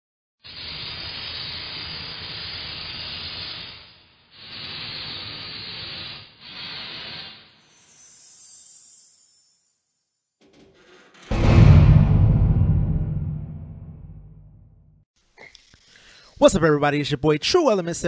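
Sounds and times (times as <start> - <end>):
hiss bursts: 0.5 - 8.4.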